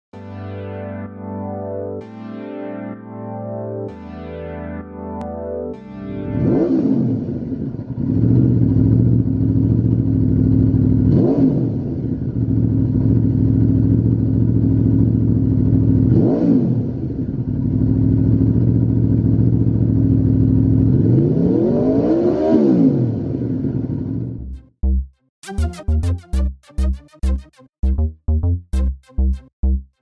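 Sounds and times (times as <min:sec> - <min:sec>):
motorcycle engine idling and revving: 0:06.4 - 0:24.6.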